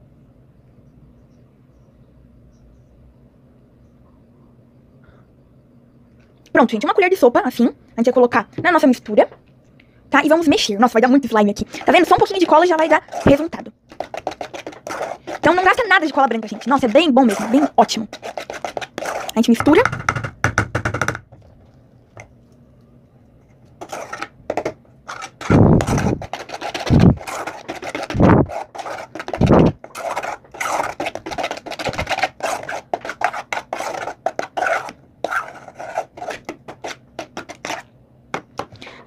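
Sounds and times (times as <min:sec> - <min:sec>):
metal spoon scraping saucepan: 0:11.7 - 0:19.4.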